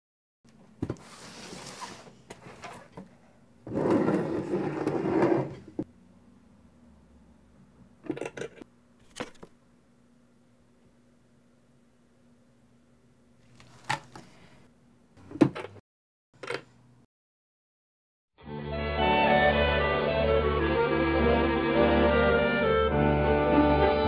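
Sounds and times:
wooden box scraping on floor: 0.9s - 2.9s, 3.7s - 5.8s.

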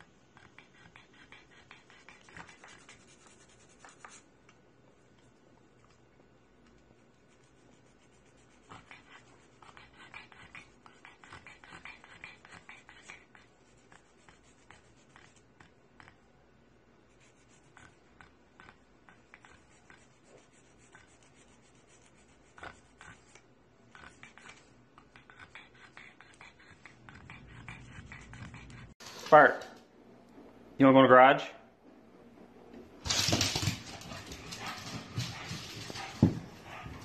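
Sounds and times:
faint scratching and rubbing: 1.8s - 4.3s, 7.2s - 9.6s, 19.4s - 23.2s.

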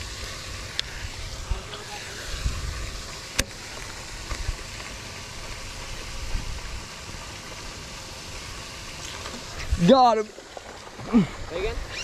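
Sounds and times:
wind rumbling on microphone: 0.0s - 6.9s
steady hiss: 0.0s - 12.0s.

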